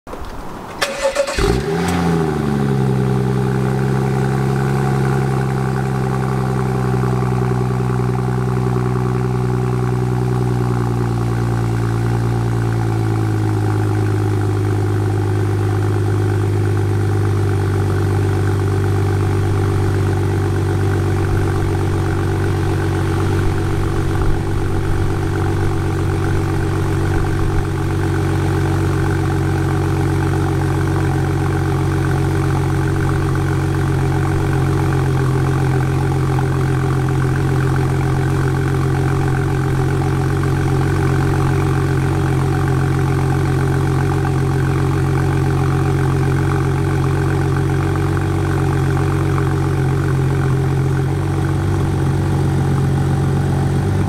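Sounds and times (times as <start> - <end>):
car engine cold start: 0.6 - 3.0
car engine fast idle: 0.8 - 54.0.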